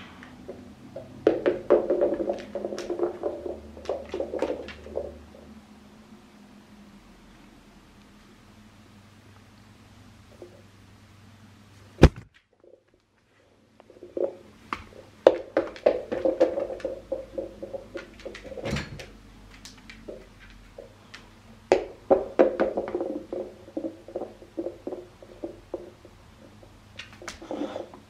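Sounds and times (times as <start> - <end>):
rubber ball bouncing: 0.4 - 5.4, 12.0 - 12.3, 13.9 - 19.0, 21.7 - 27.5
dog claws clicking on floor: 14.2 - 21.3, 26.9 - 27.4.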